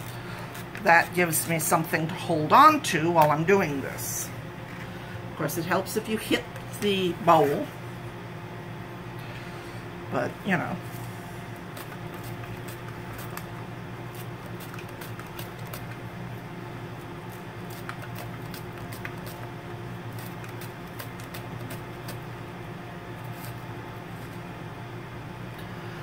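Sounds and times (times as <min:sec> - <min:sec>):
background hum: 0:00.0 - 0:26.0
onion sliced on a mandoline: 0:11.7 - 0:16.0, 0:17.1 - 0:22.4.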